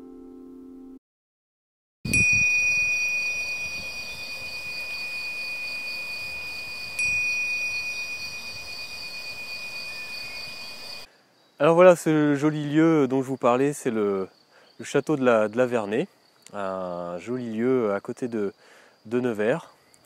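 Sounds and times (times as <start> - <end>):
small bell ringing: 2.1 - 11.1
faint background hiss: 3.2 - 20.0.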